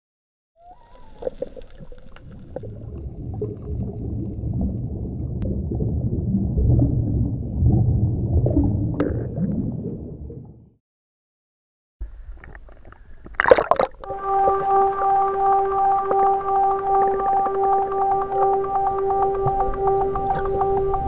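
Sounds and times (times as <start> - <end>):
underwater rumble and gurgling: 0.6 - 10.8
rising whistle: 14.1 - 21.0.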